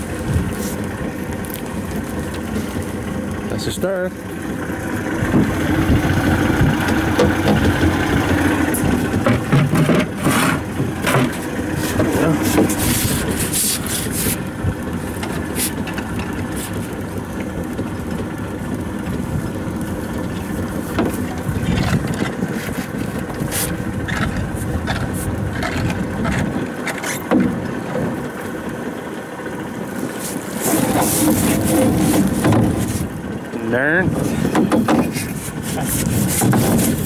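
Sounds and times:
wind and water noise: 0:00.0 - 0:37.0
pole knocking against boat: 0:06.7 - 0:08.0, 0:09.1 - 0:12.8, 0:20.9 - 0:22.4, 0:24.9 - 0:28.0, 0:30.7 - 0:33.0, 0:34.4 - 0:35.4, 0:36.2 - 0:37.0.

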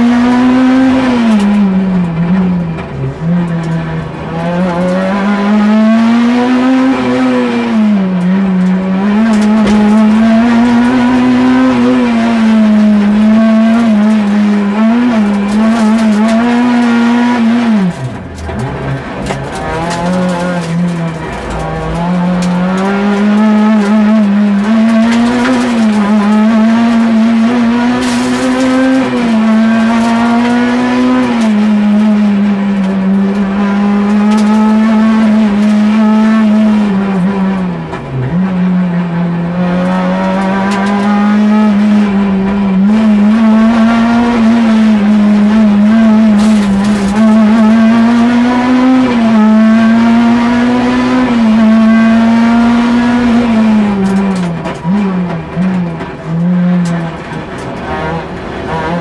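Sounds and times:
rally car engine revving: 0:00.0 - 0:59.0.

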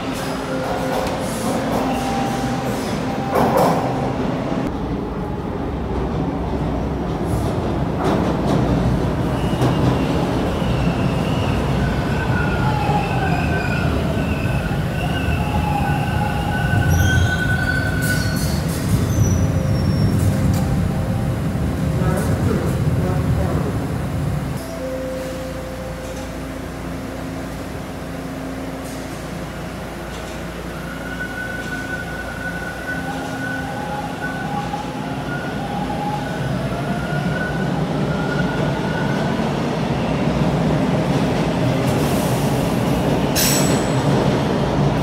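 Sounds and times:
train wheels rumbling on rail: 0:00.0 - 0:45.0
wheel and brake squeals: 0:12.2 - 0:20.4.

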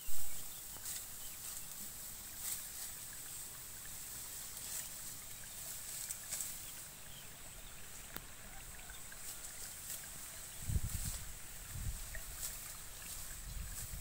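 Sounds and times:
light ticks and rustles: 0:00.6 - 0:14.0
wind rumble on microphone: 0:10.4 - 0:14.0
gust buffeting microphone: 0:10.5 - 0:12.4, 0:13.1 - 0:14.0.

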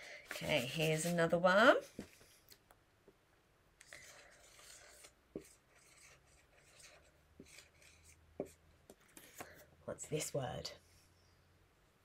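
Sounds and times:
marker pen scratching on whiteboard: 0:00.3 - 0:01.3, 0:03.8 - 0:09.6.

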